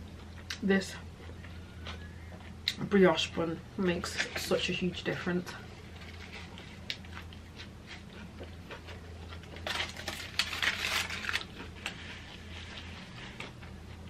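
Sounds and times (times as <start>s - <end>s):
soft chewing: 0.0s - 4.6s, 5.6s - 10.2s, 11.3s - 14.0s
aluminium foil crinkling: 9.3s - 13.6s.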